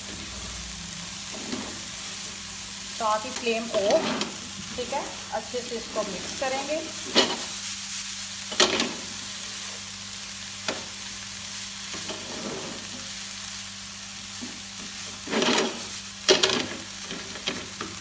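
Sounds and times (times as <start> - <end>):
light sizzle: 0.0 - 18.0
spatula scraping frying pan: 1.2 - 1.9, 7.0 - 7.6, 11.9 - 13.1, 15.0 - 17.8.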